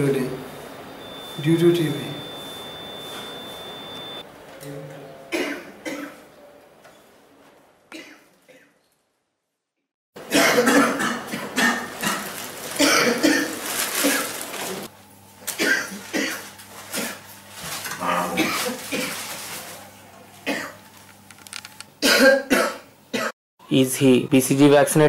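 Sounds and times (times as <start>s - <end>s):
man coughing: 5.3s - 6.2s, 10.3s - 14.3s, 22.0s - 23.3s.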